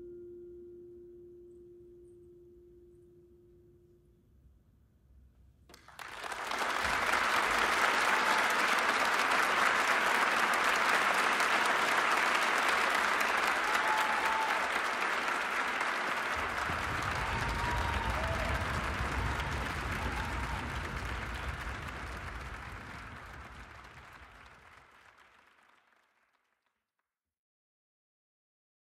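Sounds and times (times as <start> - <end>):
audience applause: 5.7 - 26.6
short cheers: 5.8 - 24.4.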